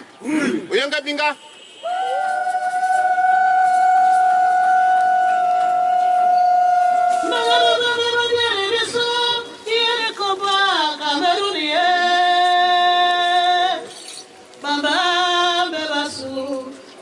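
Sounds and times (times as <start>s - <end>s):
woman singing into a microphone: 3.5s - 14.0s, 14.6s - 16.9s.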